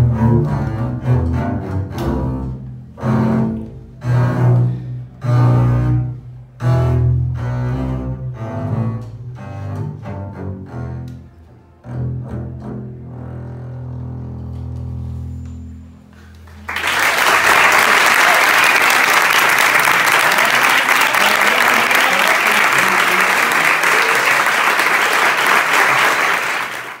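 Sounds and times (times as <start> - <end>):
double basses bowing low note: 0.0 - 16.7
audience applauding: 16.4 - 27.0.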